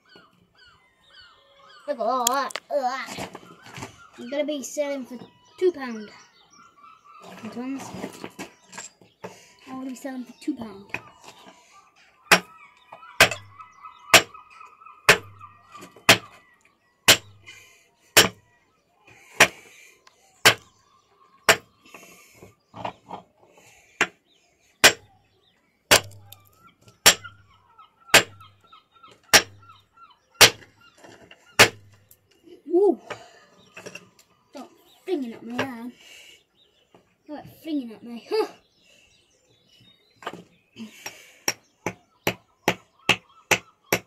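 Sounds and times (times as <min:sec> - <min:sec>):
hammer cracking stone: 0:20.4 - 0:20.6, 0:24.8 - 0:25.0, 0:25.9 - 0:26.4, 0:27.0 - 0:27.3, 0:30.4 - 0:30.6, 0:31.6 - 0:31.9.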